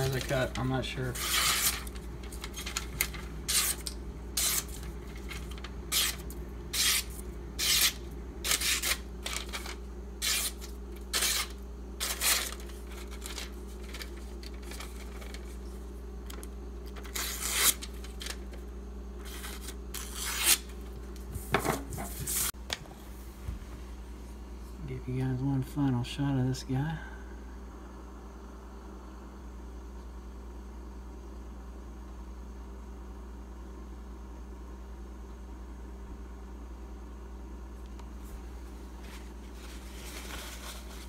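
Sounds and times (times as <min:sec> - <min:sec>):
knife slicing through paper: 0:01.0 - 0:15.5, 0:17.0 - 0:18.4.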